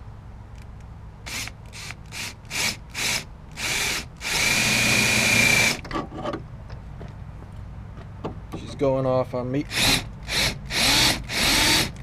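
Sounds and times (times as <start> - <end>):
cordless drill drilling sheet metal: 1.3 - 5.8, 9.7 - 12.0.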